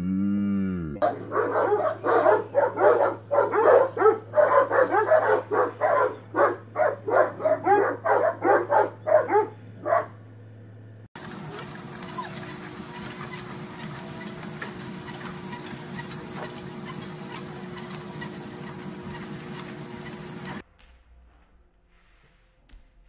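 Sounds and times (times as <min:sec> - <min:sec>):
dogs barking: 0:01.0 - 0:10.2.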